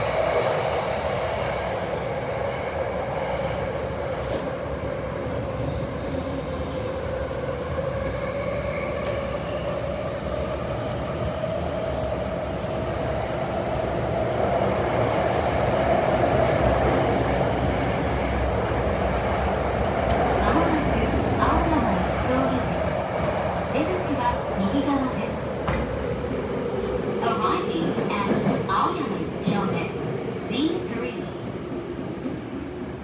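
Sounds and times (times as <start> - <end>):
subway train rumbling in tunnel: 0.0 - 33.0.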